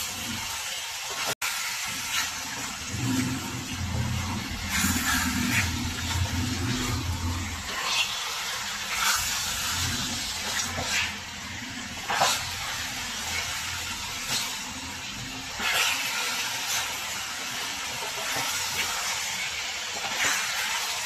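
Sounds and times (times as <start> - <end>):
chicken sizzling in hot oil: 0.0 - 21.0
spatula scraping and knocking pan: 2.1 - 16.9.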